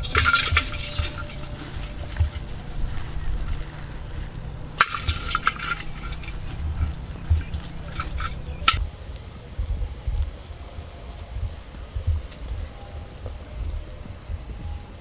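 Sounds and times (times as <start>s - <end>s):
plastic bag rustling: 0.0s - 8.8s
steady low rumble: 0.0s - 15.0s.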